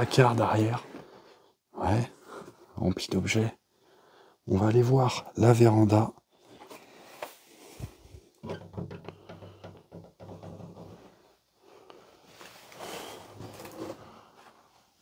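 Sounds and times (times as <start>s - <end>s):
quiet shuffling: 10.8s - 15.0s.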